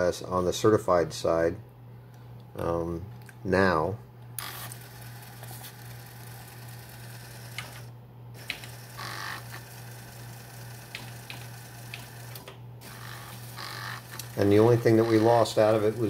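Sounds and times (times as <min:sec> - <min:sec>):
disk drive motor hum: 0:04.4 - 0:16.0.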